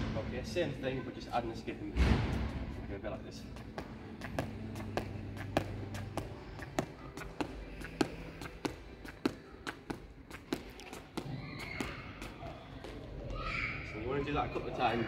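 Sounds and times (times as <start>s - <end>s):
light skipping footsteps on indoor floor: 3.4s - 13.4s.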